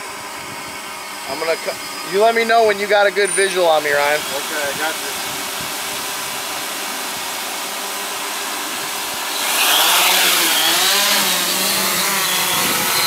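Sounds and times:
drone motors and propellers whining: 0:00.0 - 0:13.0.

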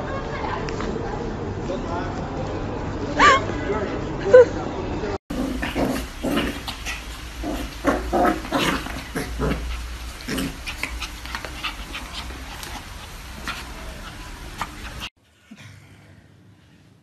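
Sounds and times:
puppies yipping: 0:05.9 - 0:15.1.

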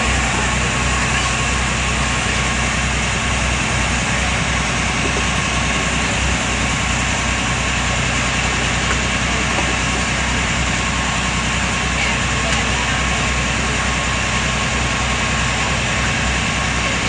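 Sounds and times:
boat engine droning: 0:00.0 - 0:17.0.

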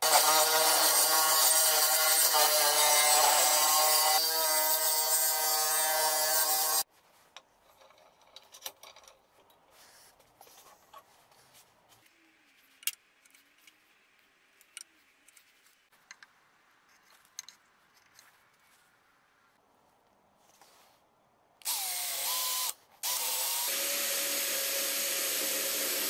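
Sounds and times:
table saw cutting wood: 0:21.8 - 0:26.0.

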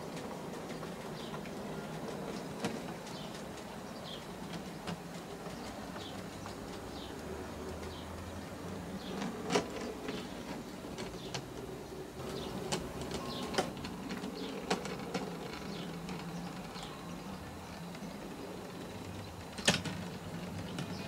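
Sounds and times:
wheels clicking over rail joints: 0:00.0 - 0:21.0.

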